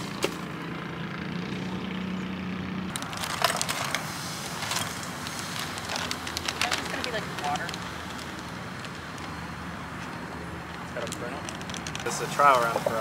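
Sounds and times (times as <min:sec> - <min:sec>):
plastic bag crinkling: 0:03.0 - 0:09.4.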